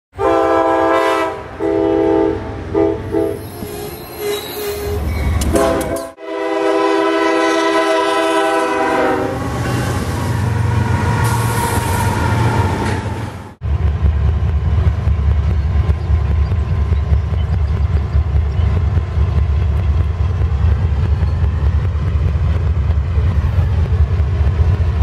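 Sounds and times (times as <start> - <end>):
train horns blowing: 0.2 - 12.7
diesel locomotive engine rumble: 0.2 - 25.0.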